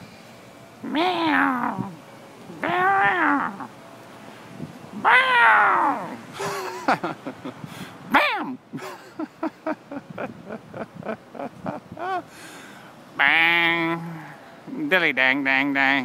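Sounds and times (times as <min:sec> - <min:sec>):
drawn-out cat-like meows: 0:00.8 - 0:03.7, 0:05.0 - 0:06.2.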